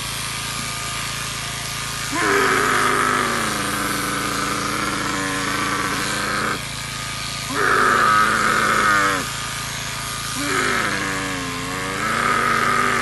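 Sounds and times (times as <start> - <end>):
electric shears cutting wool: 0.0 - 13.0.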